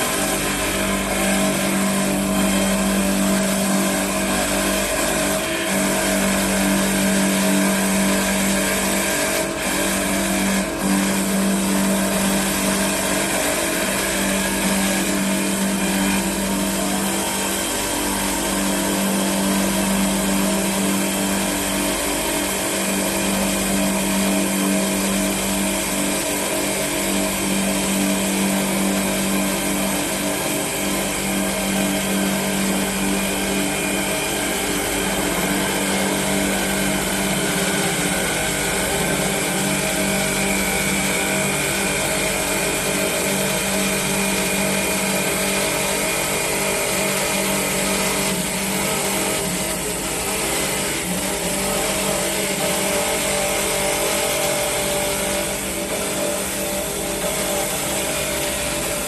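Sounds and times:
cutters shaving spinning wood: 0.0s - 59.0s
wood lathe machine hum: 0.0s - 59.0s.

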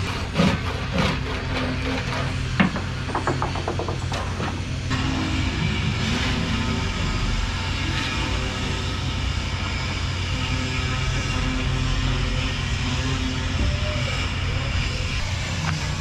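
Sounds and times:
wooden parts knocking: 1.8s - 4.6s.

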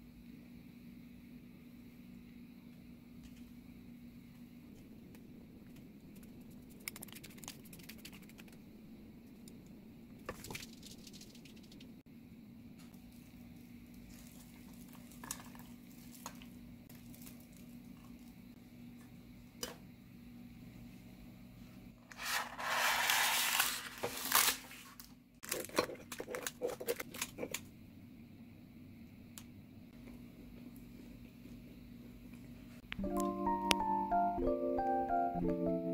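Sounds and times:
low steady hum: 0.0s - 22.2s
loud rustling scrape: 22.1s - 24.6s.

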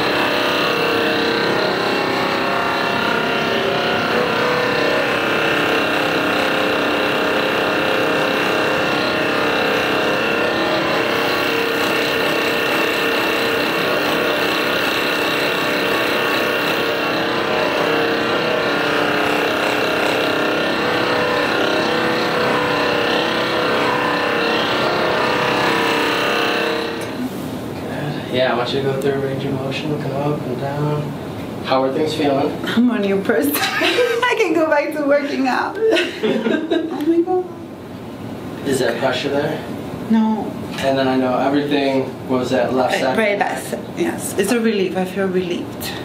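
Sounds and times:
massage gun motor humming: 0.0s - 27.3s.

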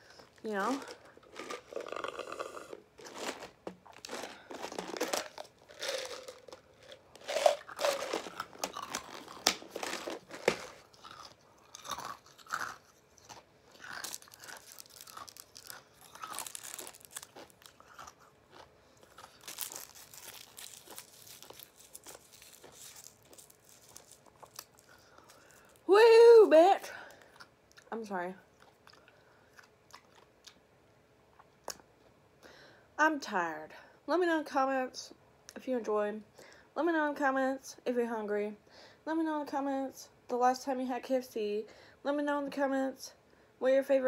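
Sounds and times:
person chewing and crunching: 0.1s - 25.8s, 28.6s - 30.6s.

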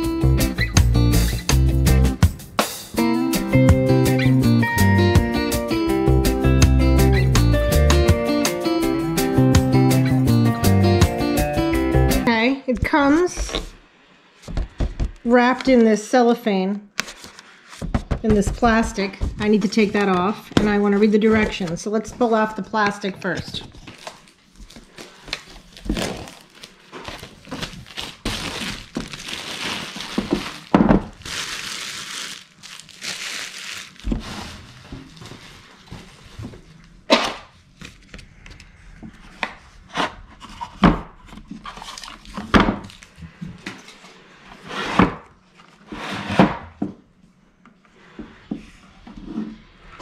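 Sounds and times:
cellophane crinkling and tearing: 23.7s - 37.0s, 41.7s - 43.2s.

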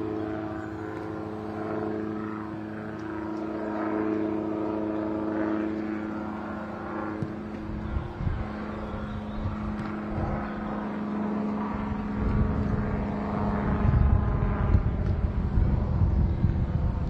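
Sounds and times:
steady mechanical drone: 0.0s - 17.0s
wind rumbling on microphone: 7.2s - 17.0s.

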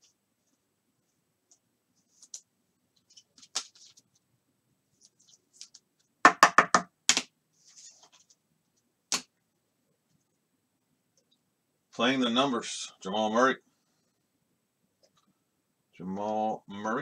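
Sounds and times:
trading cards handling: 2.0s - 4.2s, 5.0s - 6.1s.

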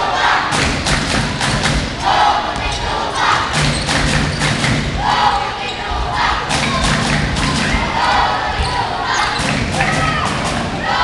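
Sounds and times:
spectators shouting and cheering: 0.0s - 11.0s.

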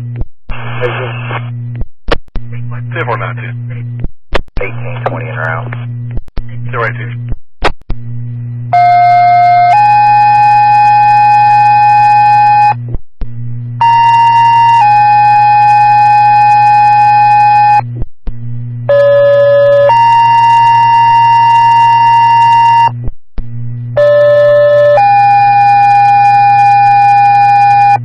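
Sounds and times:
low hum: 0.0s - 28.0s
two-tone pager tones: 8.8s - 12.7s, 13.8s - 17.8s, 18.9s - 22.9s.

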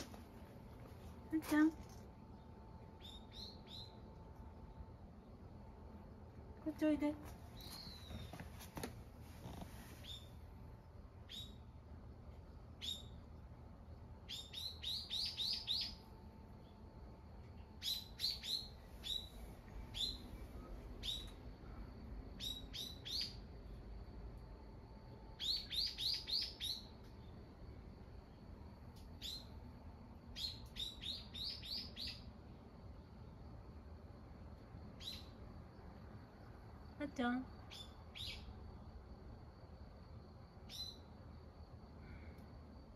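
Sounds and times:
bird chirping: 2.4s - 4.1s, 7.5s - 8.5s, 10.0s - 10.4s, 11.2s - 11.6s, 12.8s - 13.2s, 14.2s - 16.8s, 17.8s - 20.4s, 21.0s - 21.4s, 22.4s - 23.4s, 25.4s - 27.3s, 30.4s - 32.3s, 35.0s - 35.4s, 37.7s - 38.5s, 40.7s - 41.1s.

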